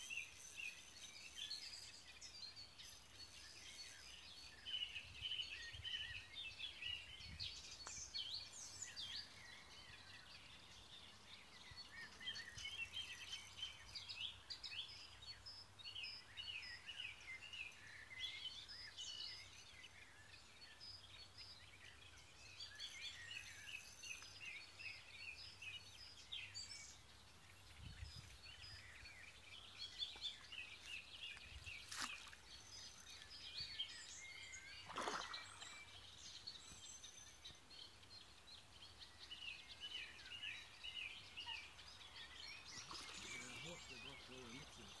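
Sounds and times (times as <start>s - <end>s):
songbirds chirping and trilling: 0.0s - 45.0s.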